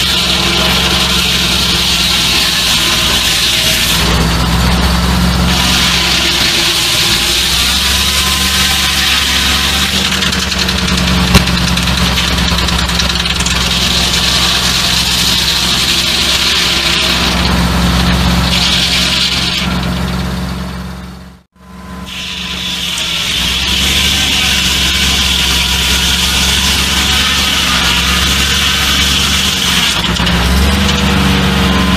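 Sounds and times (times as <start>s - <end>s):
saw blade cutting wood: 0.0s - 20.6s, 22.0s - 31.9s
tractor engine running: 0.0s - 31.9s.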